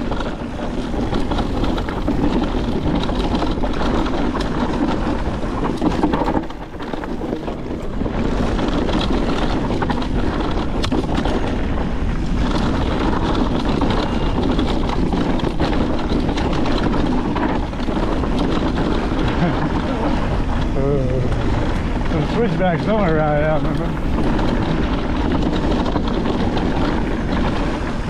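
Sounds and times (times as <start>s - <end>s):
bike rattling over rocks: 0.0s - 28.0s
tyres crunching on dirt: 0.0s - 28.0s
wind rushing over microphone: 0.0s - 28.0s.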